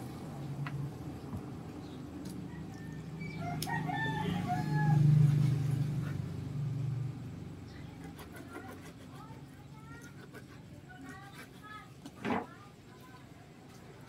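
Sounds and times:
rooster crowing: 0:02.4 - 0:05.8.

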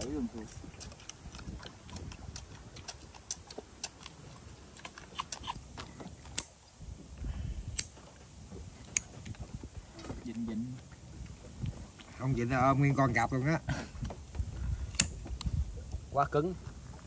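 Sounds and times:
wind rumble on microphone: 0:00.0 - 0:02.9, 0:05.6 - 0:17.0.

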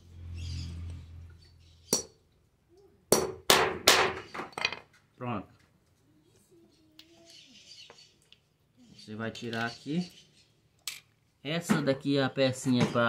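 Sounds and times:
hammer striking steel punch: 0:03.1 - 0:04.2.

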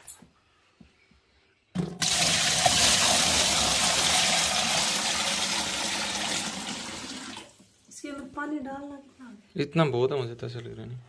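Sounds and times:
water pouring into plastic tub: 0:01.8 - 0:07.8.

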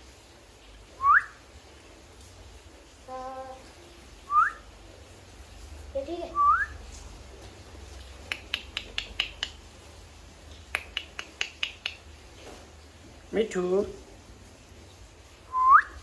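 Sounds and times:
parakeet clicking chirps: 0:08.3 - 0:09.6, 0:10.7 - 0:12.1.

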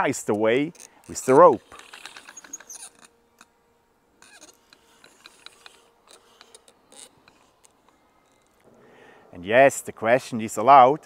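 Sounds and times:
small clicks and creaks: 0:00.2 - 0:03.6, 0:04.2 - 0:08.7
rope creaking over wooden pulley: 0:00.5 - 0:03.5, 0:04.2 - 0:08.7.

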